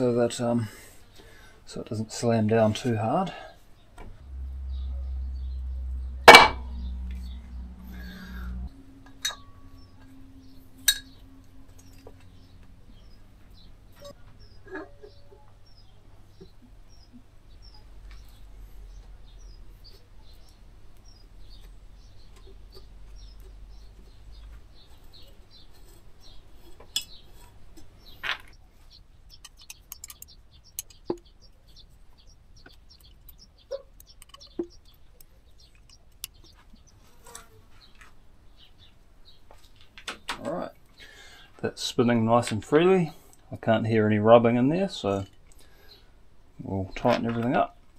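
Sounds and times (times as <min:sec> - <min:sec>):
low hum: 0:03.0 - 0:15.8
faint high chirps: 0:04.2 - 0:16.5.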